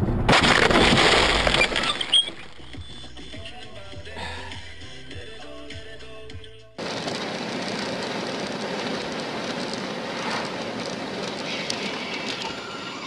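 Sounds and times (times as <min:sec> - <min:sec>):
tyre and wind noise in car: 0:06.8 - 0:13.0.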